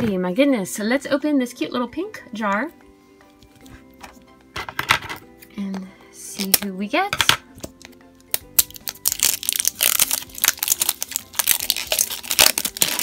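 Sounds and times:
plastic shrink wrap crinkling: 8.3 - 13.0.

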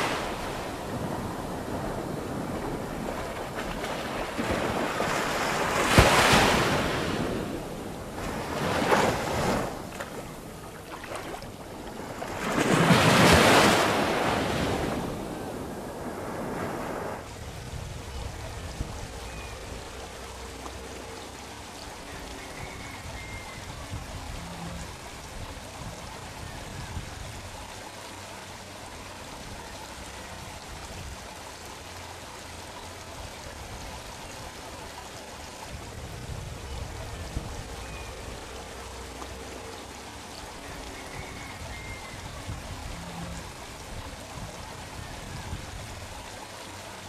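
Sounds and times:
small waves washing on sand: 0.0 - 19.2
wind on microphone: 0.0 - 20.2, 22.1 - 27.6, 35.5 - 38.7, 40.6 - 46.4.

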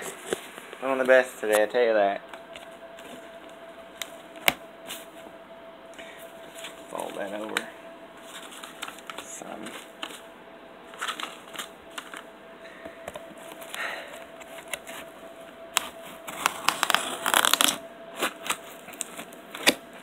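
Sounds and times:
paper crinkling: 0.0 - 5.2, 6.3 - 12.3, 13.0 - 20.0
cardboard and tape scraping: 15.8 - 20.0.

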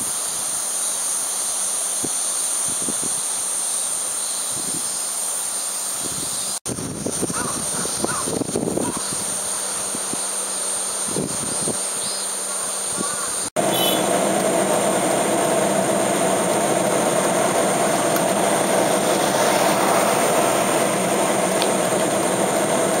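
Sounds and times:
cicadas buzzing: 0.0 - 23.0
steady rushing noise: 5.8 - 23.0.

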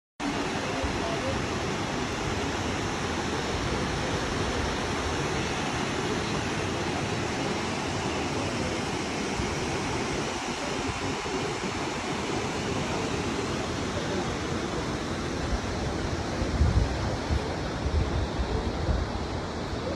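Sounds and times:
waterfall rushing: 0.2 - 19.9.

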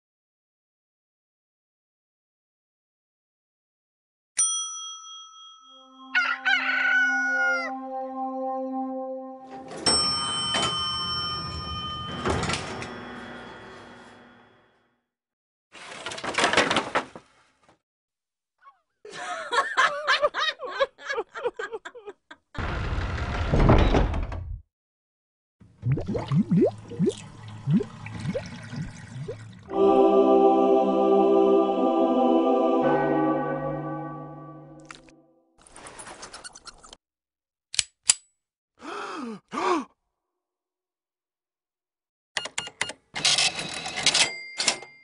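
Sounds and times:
bright bell ding: 4.4 - 6.4, 9.8 - 13.4
rooster crowing: 6.1 - 7.8
person laughing: 19.0 - 22.5.

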